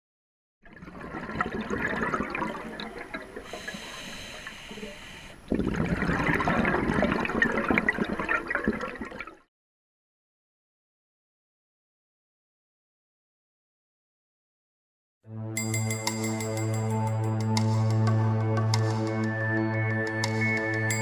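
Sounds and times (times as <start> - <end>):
bubbling gurgling water: 0.6 - 4.5, 5.4 - 9.5.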